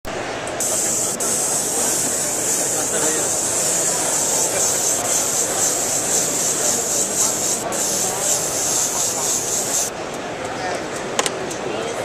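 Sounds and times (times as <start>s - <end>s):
airbrush hissing: 0.6s - 9.9s.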